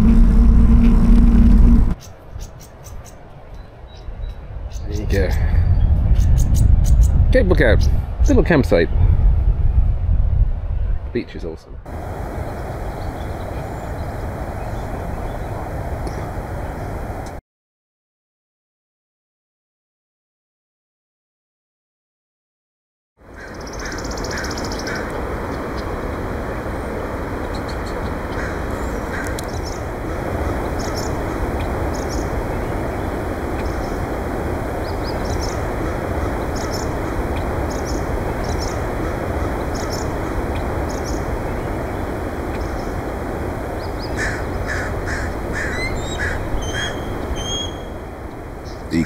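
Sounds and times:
wind noise on microphone: 0.0 - 2.8, 3.4 - 17.4
short bird calls: 43.8 - 47.9.

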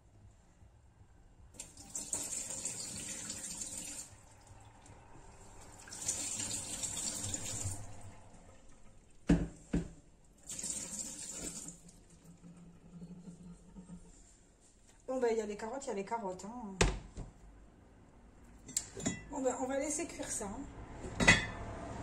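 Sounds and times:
water running into sink: 1.6 - 9.5, 10.4 - 13.5.

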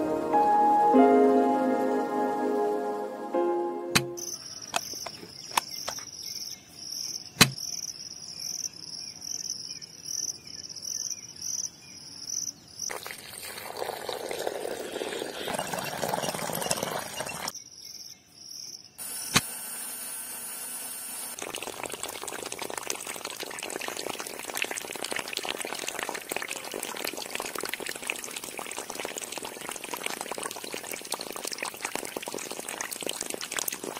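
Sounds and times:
water pump stream splashing: 12.9 - 17.5, 19.0 - 33.9.

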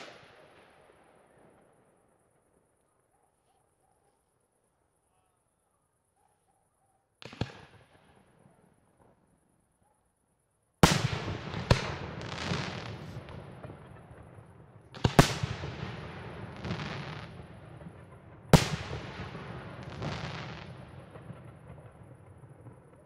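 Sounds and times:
rolling echo: 10.8 - 23.0.

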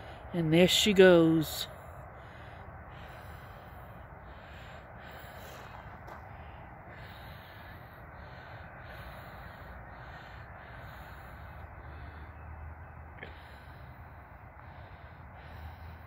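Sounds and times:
distant birds calling: 0.0 - 16.0
low background rumble: 0.0 - 16.0.

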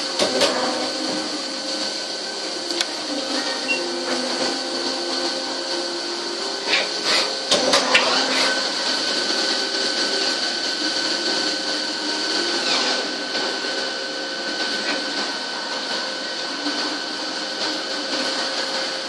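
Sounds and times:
high-pitched machine hum: 0.0 - 19.0
lathe cutting plastic: 0.0 - 19.0.

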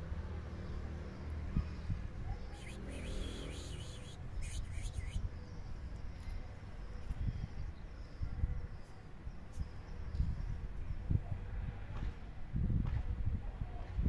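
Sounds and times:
high chirps: 2.6 - 5.2
wind buffeting microphone: 10.1 - 14.0.

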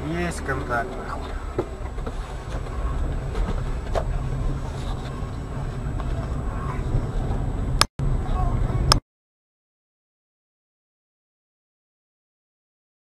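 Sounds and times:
engine and tyre rumble: 0.0 - 9.0.

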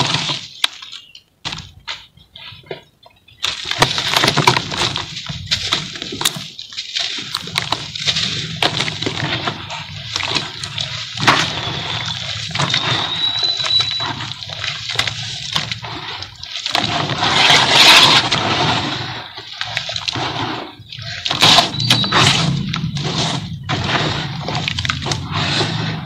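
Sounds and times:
hands sloshing wet slurry: 3.4 - 26.0
rushing surge of slurry: 7.5 - 26.0.

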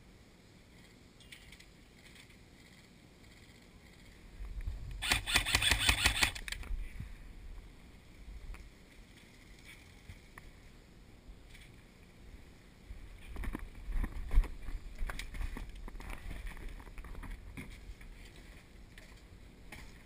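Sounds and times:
airsoft gun firing: 5.0 - 6.5.

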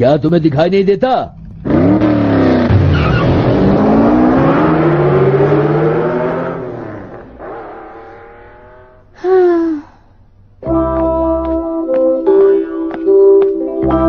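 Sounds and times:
cartoon car engine speeding away: 1.3 - 9.2
short loud falling sound: 2.0 - 9.2.

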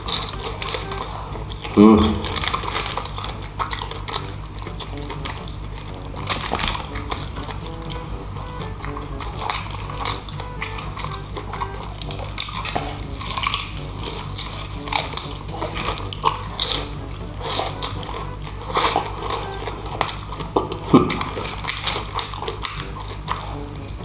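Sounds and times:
crunchy chewing: 0.0 - 24.0
wet mouth clicks: 0.0 - 24.0.

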